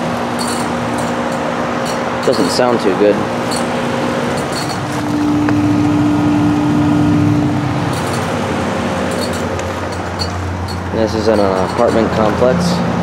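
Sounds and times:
heat pump humming: 0.0 - 13.0
high steady tone: 3.2 - 12.2.

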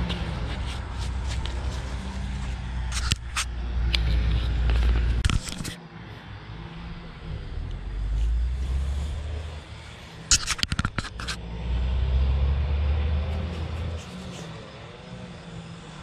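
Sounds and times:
fingers scratching through soil: 0.0 - 5.8, 8.0 - 11.4, 13.2 - 14.6
low rumble: 6.0 - 10.3.

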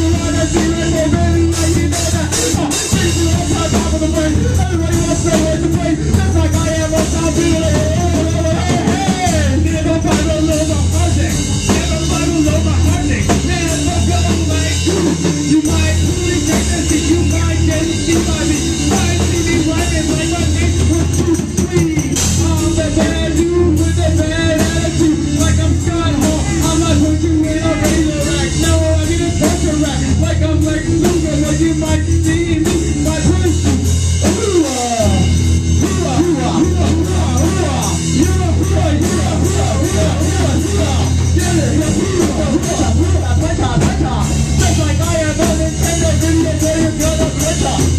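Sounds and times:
bass line: 0.0 - 47.9
drum kit: 0.0 - 47.9
person singing: 0.0 - 47.9.

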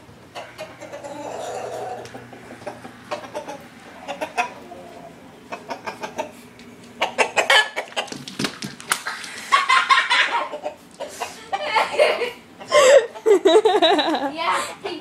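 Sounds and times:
chicken squawking: 0.3 - 8.1, 9.0 - 12.1
chicken clucking: 0.3 - 8.2, 9.5 - 13.4.

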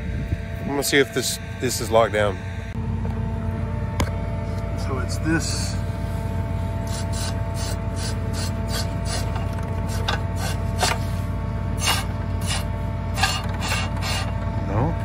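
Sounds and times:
steady engine drone: 0.0 - 15.0
metal parts scraping and clicking: 11.8 - 14.4.

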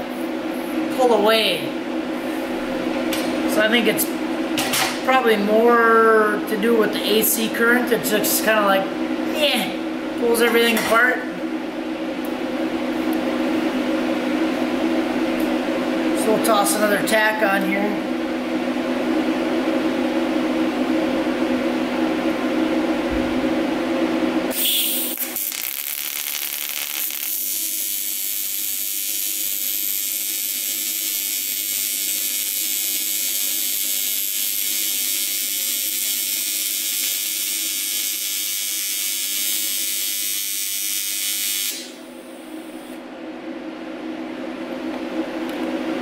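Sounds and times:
steady low hum: 0.0 - 34.7, 39.6 - 46.0
welding arc buzzing: 24.5 - 43.0.

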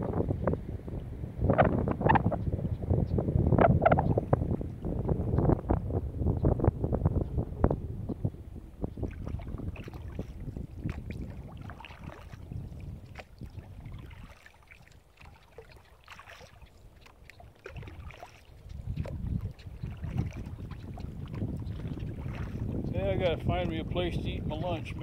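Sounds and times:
wind rumble on microphone: 0.0 - 25.0
paddle splashes and drips: 8.9 - 25.0.

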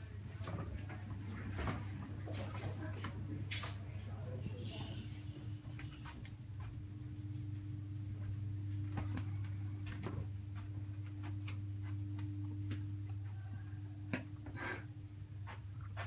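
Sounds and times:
low hum: 4.1 - 16.0.

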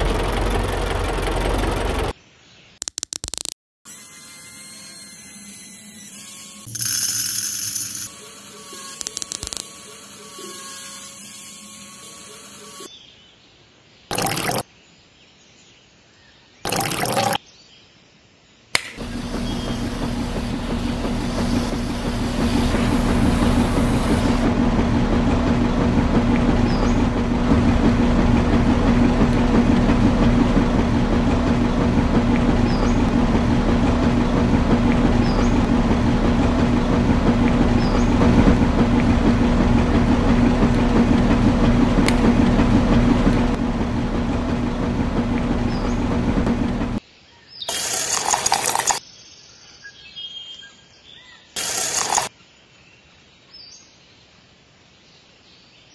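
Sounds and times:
miniature concrete mixer running: 0.0 - 2.1, 6.7 - 10.6, 14.1 - 14.6, 19.0 - 47.0, 47.7 - 49.0, 51.6 - 52.3
short noise: 19.0 - 47.0.

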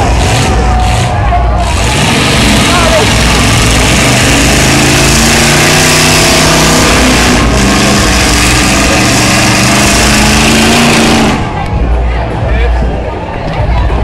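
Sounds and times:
car engines running loudly: 0.0 - 14.0
heavy rushing noise: 0.0 - 14.0.

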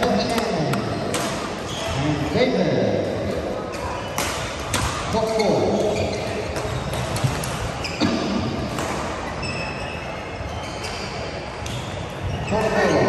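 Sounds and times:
racquets striking shuttlecocks: 0.2 - 1.7, 3.8 - 5.2, 6.4 - 9.3
shoe squeaks on court floor: 1.6 - 2.2, 5.3 - 8.3, 9.2 - 13.0.

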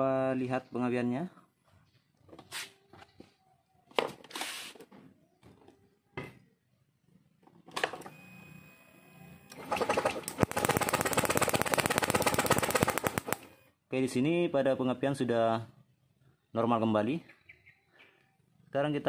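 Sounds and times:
electric starter hum: 7.7 - 13.7
fast sharp ignition clicks: 9.5 - 13.6.

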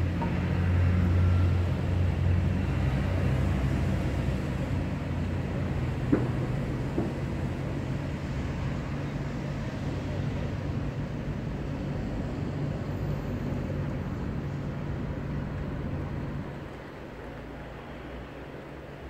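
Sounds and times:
city traffic rumble: 0.0 - 19.0.

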